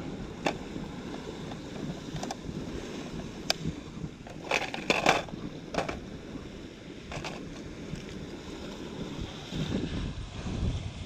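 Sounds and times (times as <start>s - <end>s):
plastic tackle clattering: 4.3s - 6.0s, 7.1s - 7.6s.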